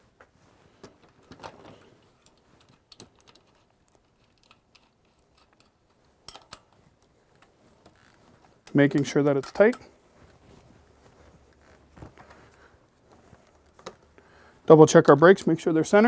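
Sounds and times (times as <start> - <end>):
metallic clicks and knocks: 0.9 - 6.8.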